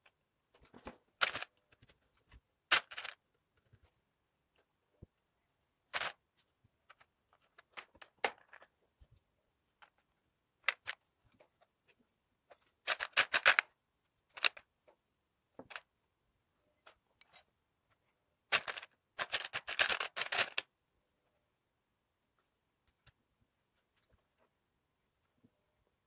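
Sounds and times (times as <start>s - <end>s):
plastic pieces clicking and rattling: 1.2s - 2.0s, 2.7s - 3.7s, 10.6s - 11.0s, 12.8s - 13.7s, 14.3s - 14.7s, 18.5s - 20.7s.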